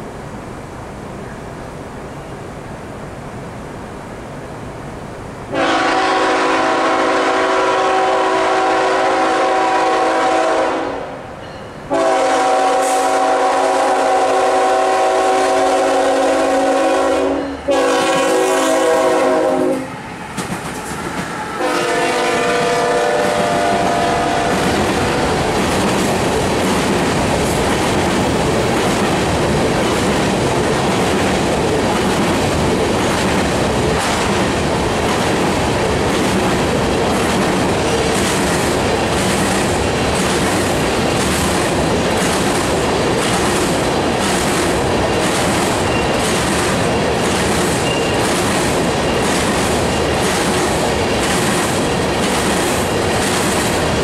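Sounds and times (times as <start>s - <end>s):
train rumbling past: 0.0s - 54.0s
locomotive air horn blasts: 5.5s - 11.1s, 11.9s - 20.0s, 21.5s - 25.3s
wheels clickety-clack: 20.3s - 21.4s, 24.4s - 54.0s.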